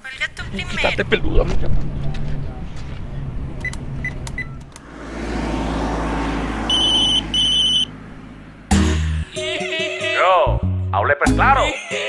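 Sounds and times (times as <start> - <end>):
vehicle rumble: 0.0 - 9.4
sharp clicks: 3.6 - 4.9
high electronic beeps: 6.7 - 7.9.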